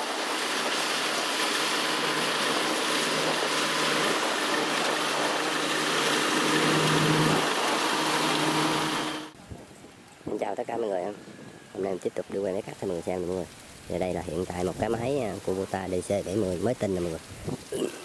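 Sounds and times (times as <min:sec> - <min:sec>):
engine hum: 0:00.0 - 0:09.4
harvester machinery rushing: 0:00.0 - 0:09.4.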